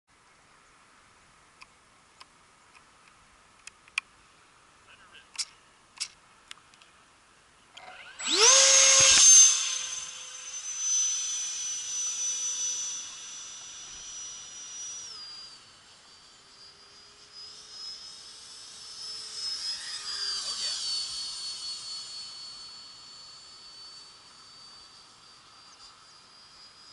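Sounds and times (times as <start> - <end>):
electric model jet high whine: 6.8 - 26.9.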